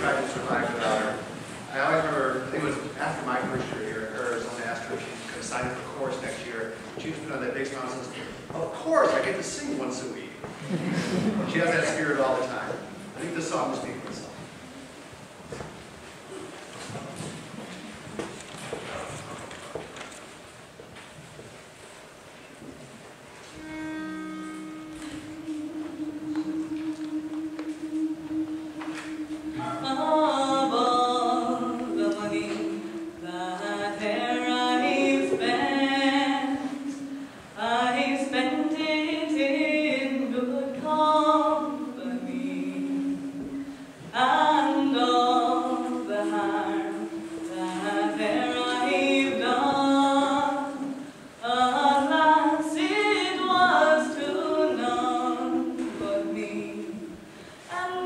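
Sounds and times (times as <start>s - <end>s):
girls' choir singing a cappella: 25.2s - 57.2s.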